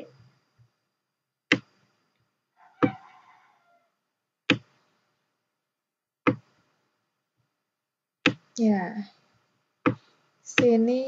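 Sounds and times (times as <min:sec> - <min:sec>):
computer mouse clicks: 0:01.5 - 0:01.9.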